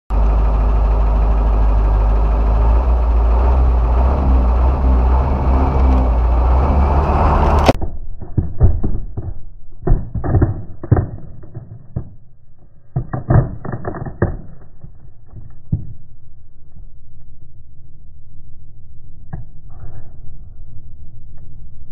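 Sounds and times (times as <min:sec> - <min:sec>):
truck engine running: 0:00.1 - 0:07.8
helmet shell cracking under tyre: 0:07.7 - 0:16.0.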